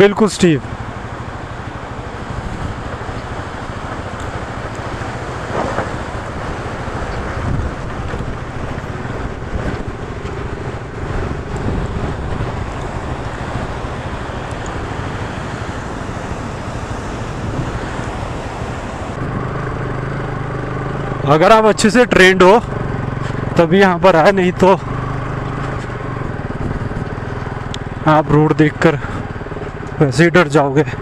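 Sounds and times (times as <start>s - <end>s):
motorcycle engine running: 0.0s - 31.0s
river rushing: 2.1s - 19.2s
wind noise on microphone: 2.2s - 3.4s, 5.1s - 19.5s, 26.3s - 27.2s.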